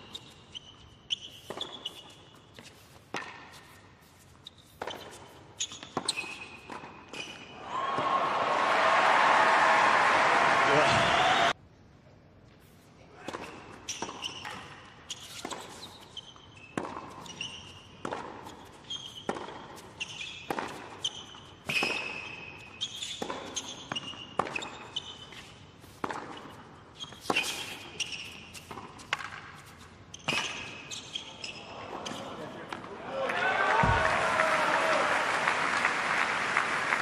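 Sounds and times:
tennis ball bouncing on hard court: 1.2s - 3.8s, 4.7s - 8.1s, 13.2s - 31.1s.

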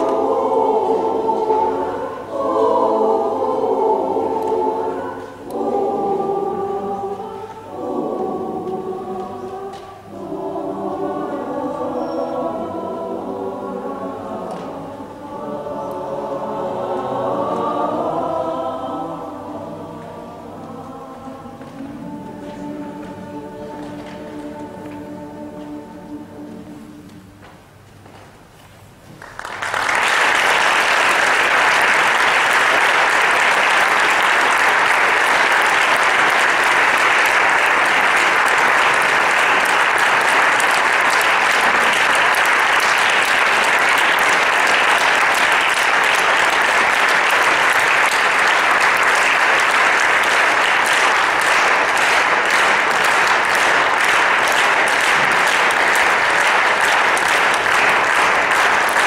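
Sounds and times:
audience applauding: 29.2s - 59.0s.

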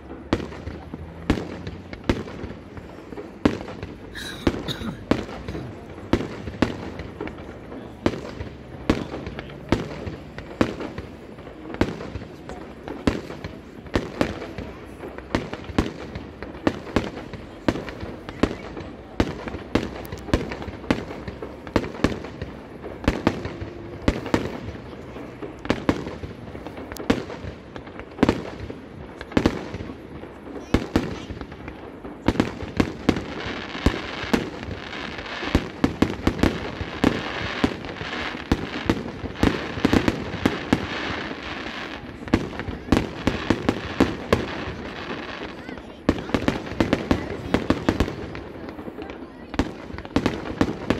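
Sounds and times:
firework bursts and bangs: 0.0s - 50.9s
firework crackling: 0.0s - 50.9s.

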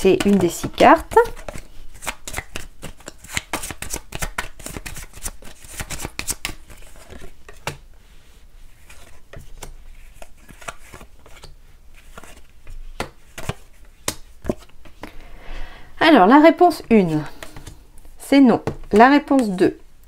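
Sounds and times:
cards being shuffled: 0.1s - 7.8s, 8.7s - 15.2s, 17.3s - 17.8s.

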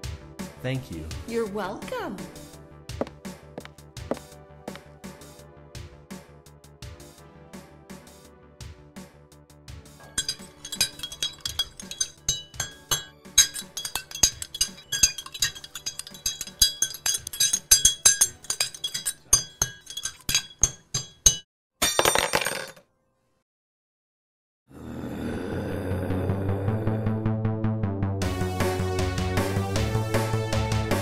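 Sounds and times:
spoon clinking in mug: 10.0s - 22.4s.

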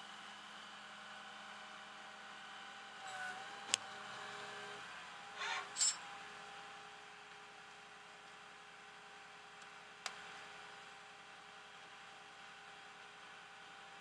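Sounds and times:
mechanical hum: 0.0s - 14.0s
short scraping bursts: 5.4s - 6.0s.

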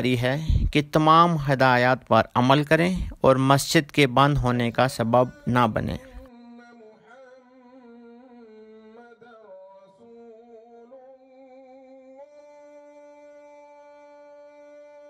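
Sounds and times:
slow wordless background melody: 0.0s - 10.2s.

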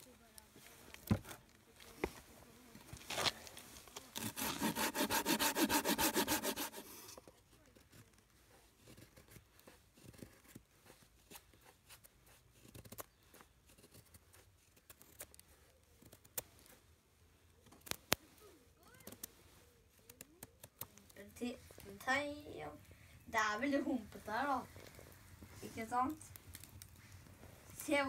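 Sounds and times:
knife shaving wood: 2.8s - 16.9s, 24.0s - 28.0s
saw cutting through branch: 4.2s - 7.1s.

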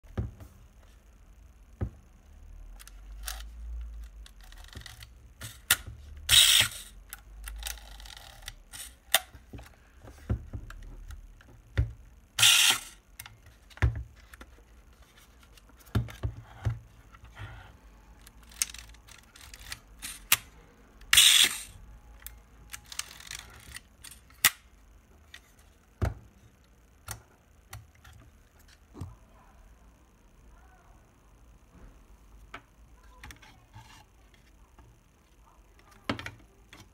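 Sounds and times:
camera lens drum whirr: 2.8s - 9.8s, 12.3s - 14.6s, 17.2s - 25.6s.

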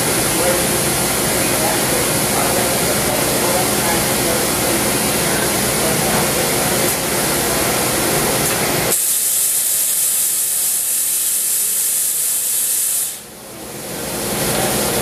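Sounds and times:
machine hum: 0.0s - 15.0s
hiss of air or coolant spray: 8.9s - 13.3s.

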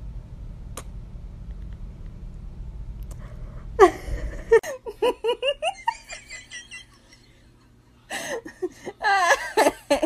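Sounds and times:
person giggling: 3.8s - 7.5s, 8.1s - 10.0s.

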